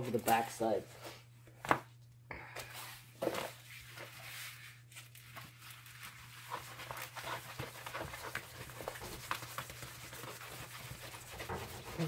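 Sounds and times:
plastic film crinkling: 0:03.3 - 0:10.4.

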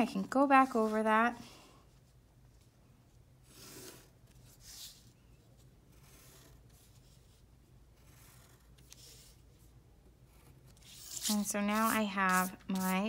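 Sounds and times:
pencil scratching on paper: 0:10.3 - 0:13.0.

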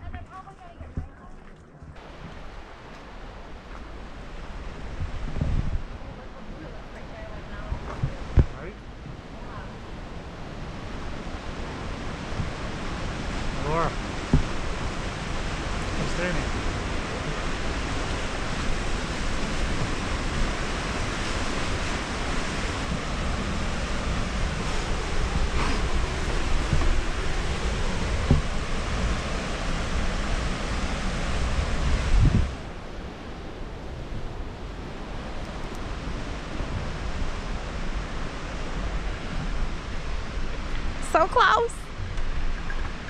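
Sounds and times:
wind rumble on microphone: 0:00.0 - 0:43.0
creek rushing through gorge: 0:02.0 - 0:43.0
fast water hissing: 0:11.9 - 0:32.5.

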